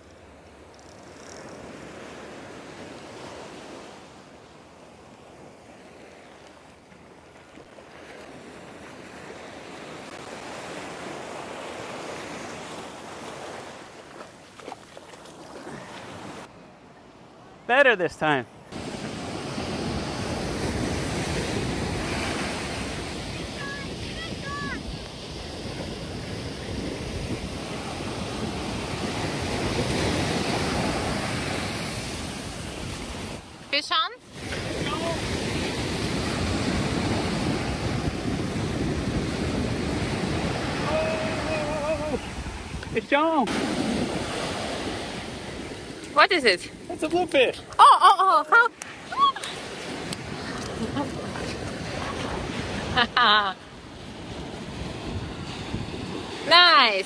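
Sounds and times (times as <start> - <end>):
ocean surf breaking: 0.0 - 16.5, 17.7 - 57.0
water splashes: 6.0 - 16.5
wind buffeting microphone: 18.8 - 33.5, 34.4 - 46.0, 54.0 - 56.5.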